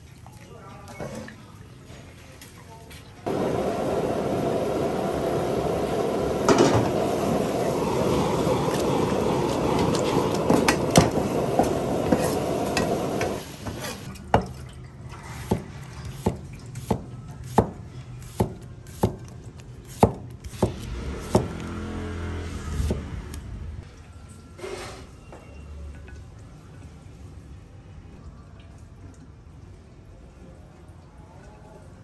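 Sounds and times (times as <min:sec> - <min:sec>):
sauce hissing in frying pan: 0:03.3 - 0:14.1.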